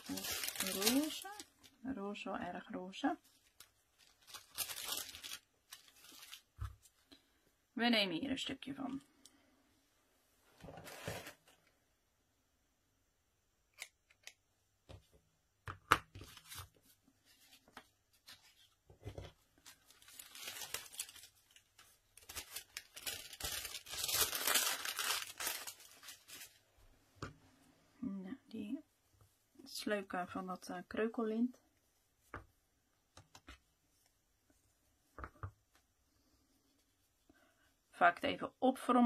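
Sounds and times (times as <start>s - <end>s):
paper ribbon rustling: 0.0s - 1.8s, 3.2s - 6.9s, 19.6s - 26.6s.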